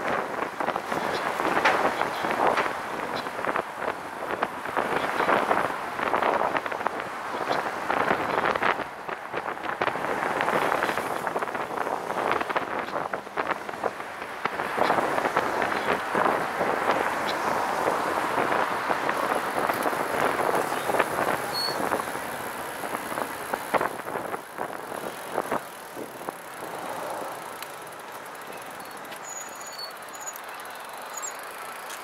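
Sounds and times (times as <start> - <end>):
tyre and wind noise: 0.0 - 32.0.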